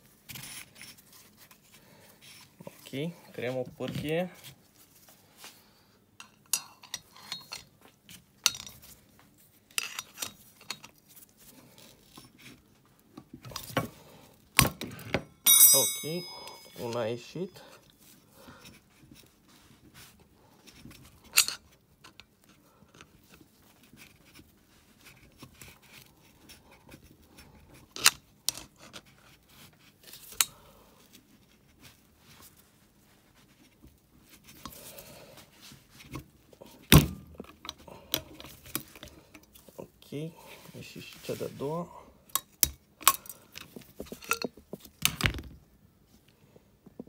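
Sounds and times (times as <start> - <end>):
screwdriver scraping metal: 9.8 - 11.0.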